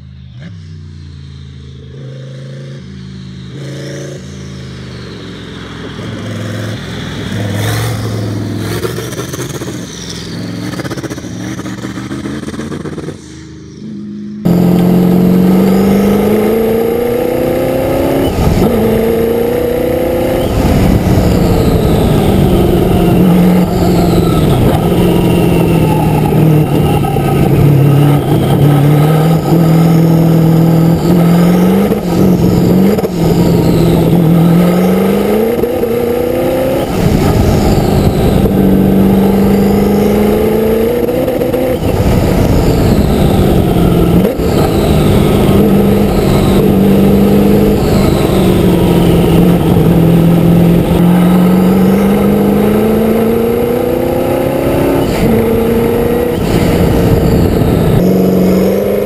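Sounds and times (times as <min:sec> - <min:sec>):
race car engine accelerating: 0:00.4 - 0:59.0
turbo whistling: 0:02.9 - 0:59.0.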